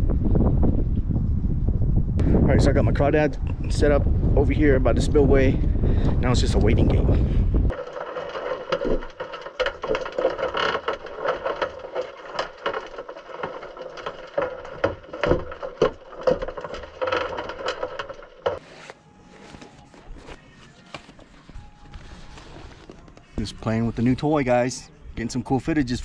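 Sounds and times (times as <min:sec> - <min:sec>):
underwater clicks and knocks: 0:07.7 - 0:18.6.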